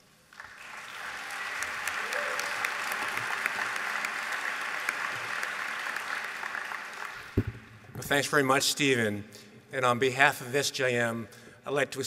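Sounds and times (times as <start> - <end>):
audience applauding: 0.3 - 7.4.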